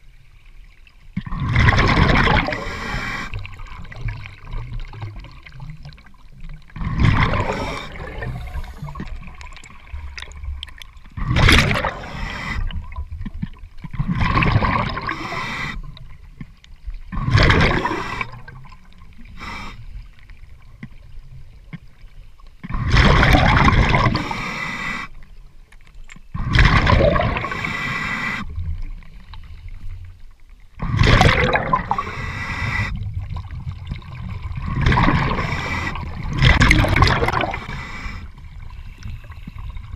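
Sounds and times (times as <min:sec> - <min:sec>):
exhaled bubbles rushing: 0:01.2 - 0:16.0, 0:17.1 - 0:19.0, 0:22.7 - 0:24.3, 0:26.4 - 0:27.7, 0:30.8 - 0:39.9
regulator inhalations: 0:07.4 - 0:09.2.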